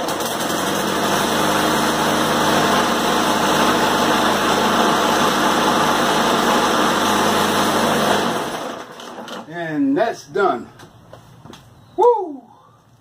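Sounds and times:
lawn mower engine running: 0.0s - 9.5s.

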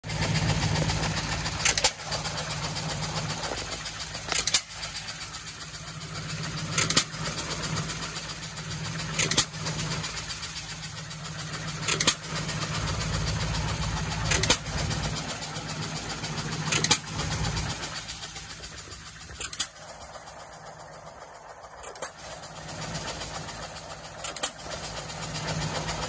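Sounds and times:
engine low running sound: 0.0s - 26.0s
engine firing pops: 0.1s - 21.0s, 21.8s - 26.0s.

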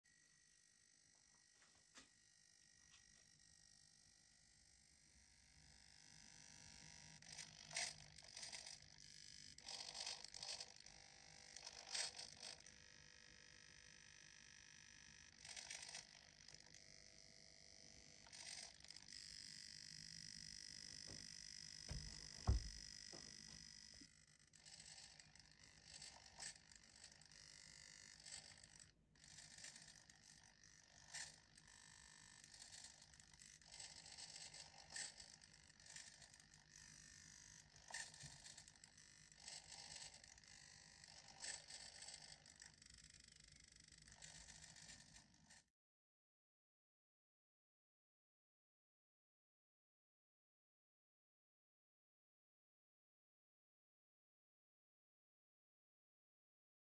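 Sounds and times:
small motor whining: 0.1s - 45.6s
low thump: 21.9s - 22.8s.

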